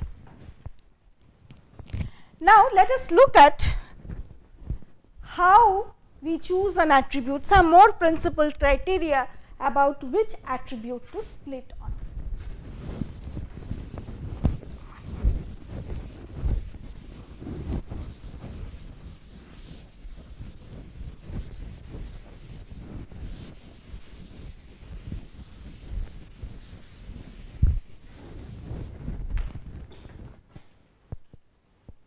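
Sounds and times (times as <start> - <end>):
duster rubbing chalkboard: 12.0 - 30.4.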